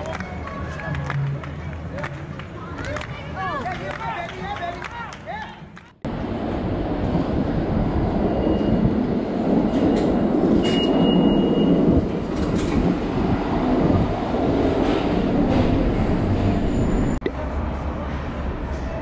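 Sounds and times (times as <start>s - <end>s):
subway train rumbling: 6.0s - 19.0s.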